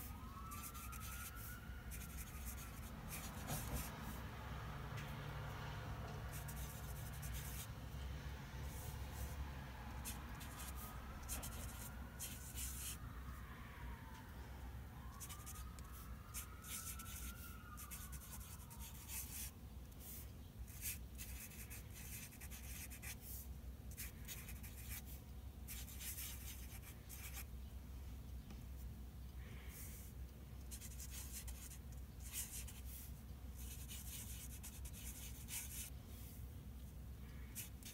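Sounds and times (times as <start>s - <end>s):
faint low hum: 0.0s - 37.9s
marker scratching on paper: 0.5s - 4.2s, 6.3s - 7.7s, 10.0s - 13.0s, 15.2s - 25.1s, 30.7s - 35.9s, 37.5s - 37.9s.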